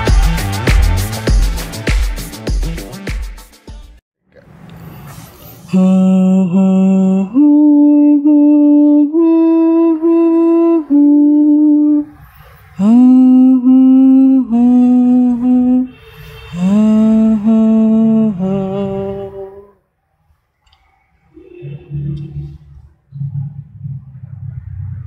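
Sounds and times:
person humming a slow tune: 0:05.7 - 0:12.1, 0:12.8 - 0:16.0, 0:16.6 - 0:19.8.

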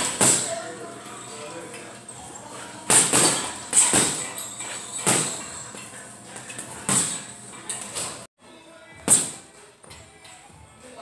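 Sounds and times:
gloved punches on heavy bag: 0:02.9 - 0:04.3.

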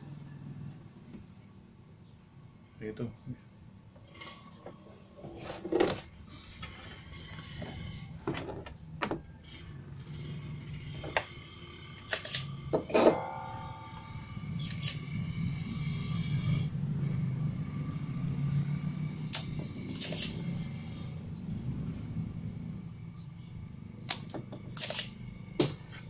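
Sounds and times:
steady low hum: 0:06.0 - 0:26.0.

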